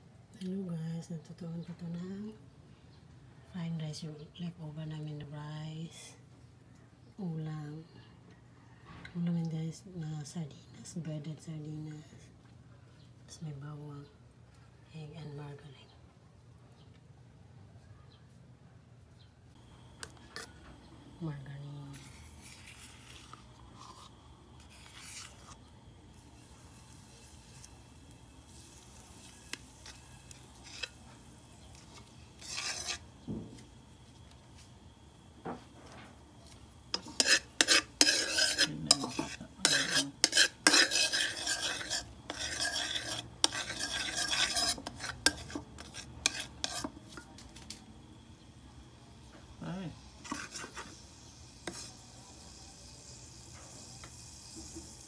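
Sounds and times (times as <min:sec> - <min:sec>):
margarine sizzling: 0:19.6 - 0:55.0
metal spoon scraping a wok: 0:20.2 - 0:20.6, 0:21.9 - 0:33.2, 0:36.9 - 0:47.7, 0:50.2 - 0:51.0, 0:51.6 - 0:52.0.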